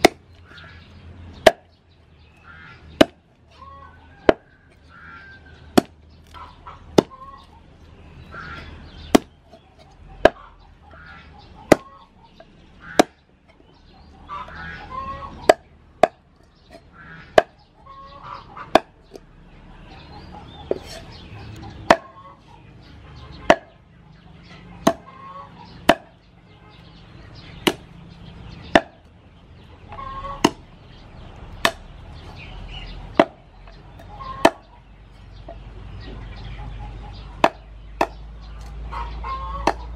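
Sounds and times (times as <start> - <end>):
cleaver chopping on wooden block: 0.0 - 0.2, 3.0 - 3.2, 5.7 - 7.2, 9.1 - 9.4, 11.7 - 11.9, 12.9 - 13.2, 21.8 - 22.2, 23.4 - 23.7, 24.8 - 25.1, 25.8 - 26.2, 27.6 - 27.9, 28.7 - 29.1, 30.4 - 30.7, 31.6 - 31.9, 33.2 - 33.4, 37.4 - 38.7, 39.6 - 39.9.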